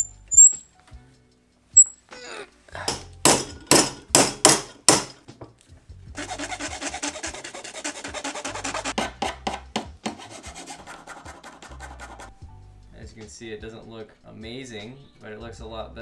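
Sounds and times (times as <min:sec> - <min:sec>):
hand file rasping on carbon fiber: 0:06.2 - 0:12.4.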